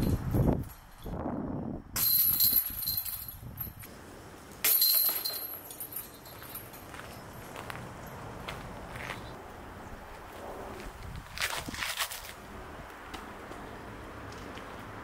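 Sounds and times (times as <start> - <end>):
discs hitting basket chains: 2.0 - 3.9, 4.6 - 6.9.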